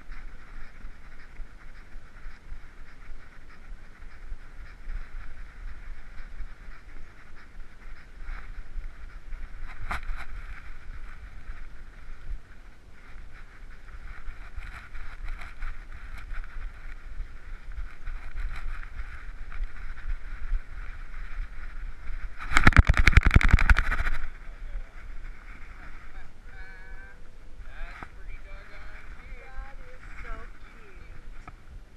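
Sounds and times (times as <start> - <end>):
muffled camera rubbing hiss: 0.0 - 31.9
camera rattling and knocking: 22.3 - 24.4.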